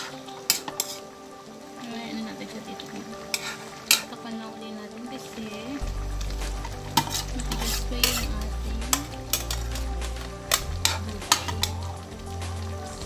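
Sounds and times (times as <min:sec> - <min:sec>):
metal spoon scraping a wok: 0:00.0 - 0:01.1, 0:03.3 - 0:04.1, 0:06.4 - 0:12.0.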